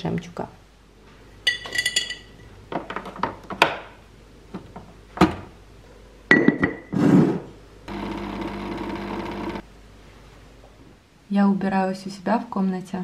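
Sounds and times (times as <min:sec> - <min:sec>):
coffee machine pump humming: 0:07.9 - 0:09.6.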